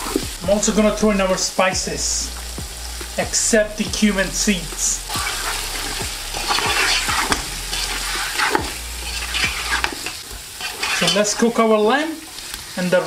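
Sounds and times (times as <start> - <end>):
meat and onions sizzling in oil: 0.0 - 13.0
spatula scraping and knocking pot: 5.1 - 11.5.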